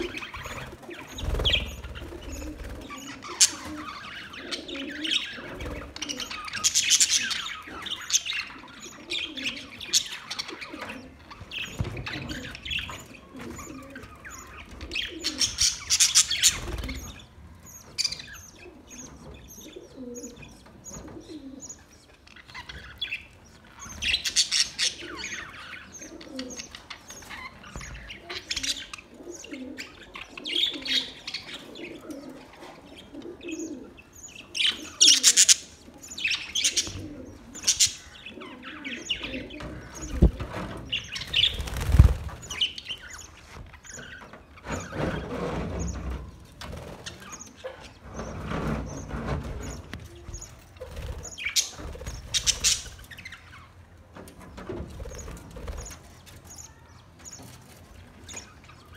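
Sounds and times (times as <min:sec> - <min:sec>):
wings flapping: 0:00.0 - 0:03.8, 0:39.9 - 0:42.7, 0:50.6 - 0:53.1
budgerigars chattering and chirping: 0:00.0 - 0:46.2, 0:46.9 - 0:53.9.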